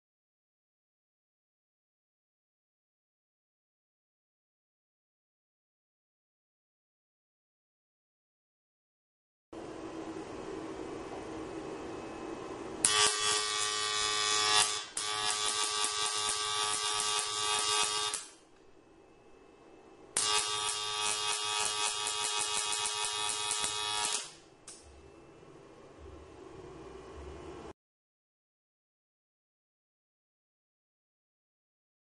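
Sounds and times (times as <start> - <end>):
steady hum: 9.6 - 27.8
high-voltage arc buzzing: 12.8 - 18.4, 20.1 - 25.0.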